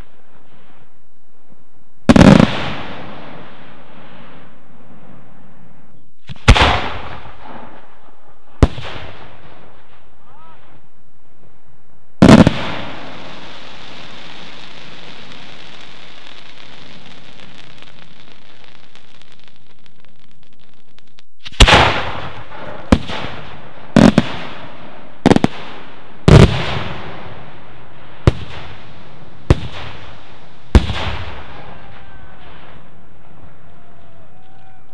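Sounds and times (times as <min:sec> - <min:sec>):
firework crackle: 0:02.1 - 0:05.3, 0:12.2 - 0:33.0.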